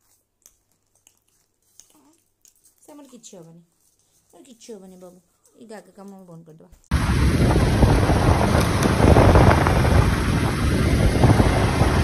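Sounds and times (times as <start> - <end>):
motorbike engine: 6.9 - 12.0
road noise: 6.9 - 12.0
wind buffeting microphone: 6.9 - 12.0.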